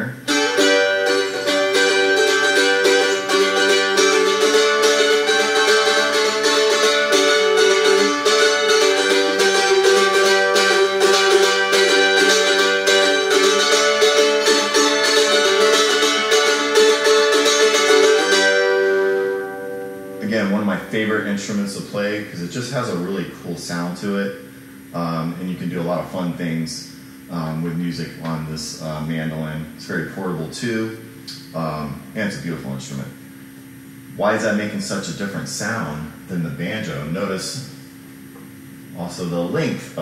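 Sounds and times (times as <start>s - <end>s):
mandolin picked notes: 0.0s - 23.3s.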